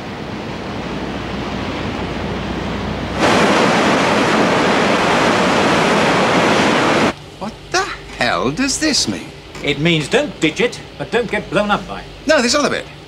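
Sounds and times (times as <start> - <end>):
ship bow rushing through waves: 0.0 - 7.2
wind rushing: 3.1 - 7.1.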